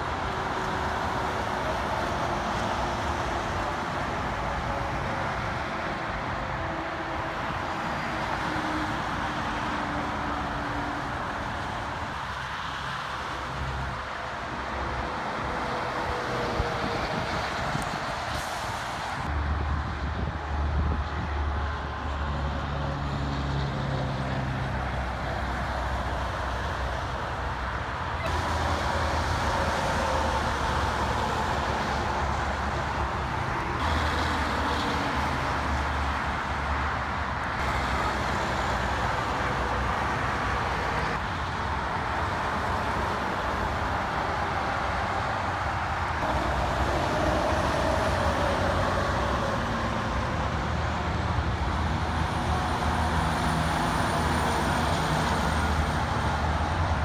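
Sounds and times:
diesel truck engines: 0.0s - 57.0s
highway traffic passing: 0.0s - 57.0s.

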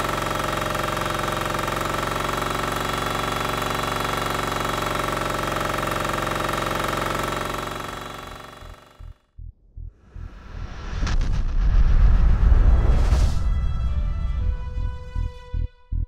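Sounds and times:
diesel engine running steadily: 0.0s - 9.2s.

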